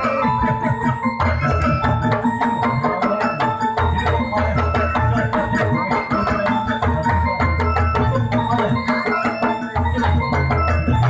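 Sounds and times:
mallet percussion runs: 0.0 - 11.0
steady drum beats: 0.0 - 11.0.

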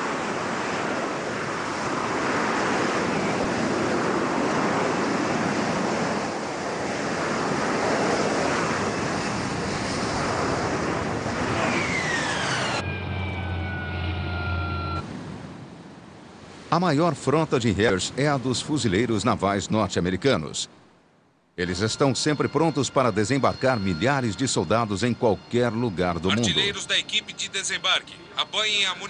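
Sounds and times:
jet engine roar: 0.0 - 15.4
low hum: 11.0 - 15.6
jet whine falling in pitch: 11.1 - 15.0, 21.6 - 29.0.

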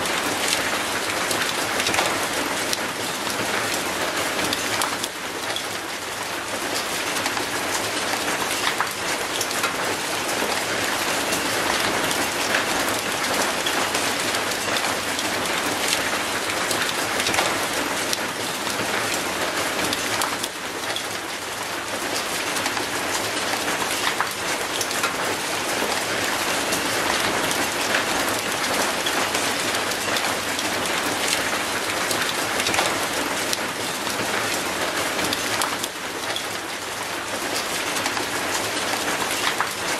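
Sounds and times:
rain splashing on paving: 0.0 - 39.9.

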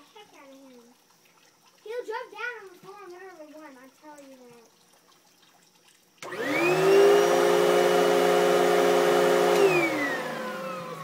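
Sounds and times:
vacuum cleaner motor whine: 6.2 - 11.0.

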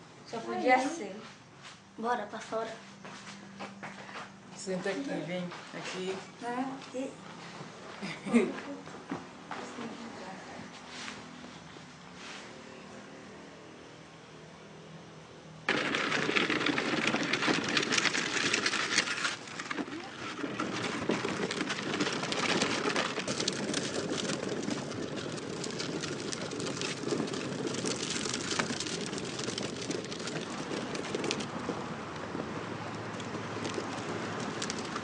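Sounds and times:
rain falling: 15.7 - 35.0.

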